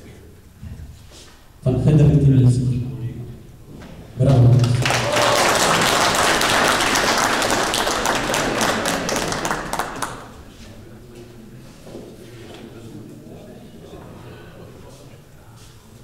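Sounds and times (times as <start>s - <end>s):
people clapping: 4.2s - 10.6s.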